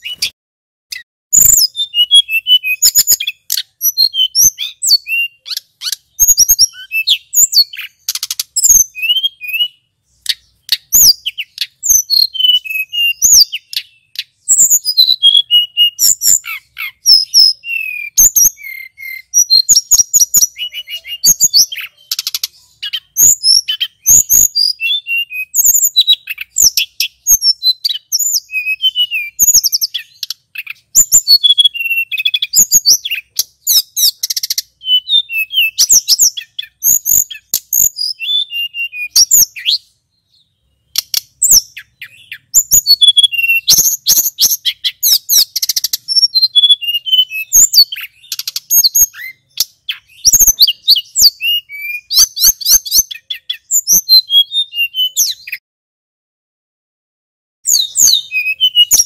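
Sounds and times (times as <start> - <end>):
bird singing high whistles and trills: 0.0 - 55.6, 57.6 - 59.0.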